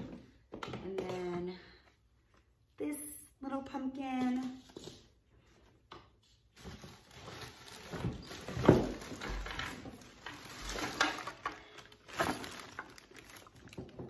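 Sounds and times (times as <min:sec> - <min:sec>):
rustling in plastic tote: 0:06.6 - 0:14.0.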